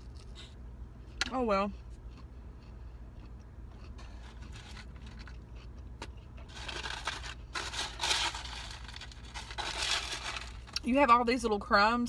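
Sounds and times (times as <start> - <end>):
steady low hum: 0.0 - 12.0
fingers rustling in paperboard box: 6.4 - 10.8.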